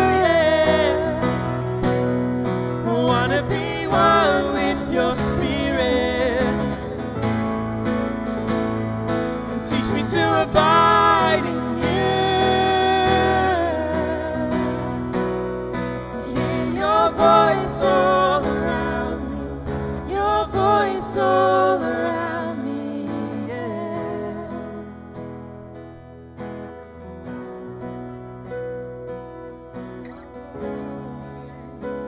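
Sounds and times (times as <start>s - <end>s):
acoustic guitar: 0.0s - 32.0s
keyboard: 0.0s - 32.0s
woman singing: 9.7s - 14.8s, 16.2s - 24.8s.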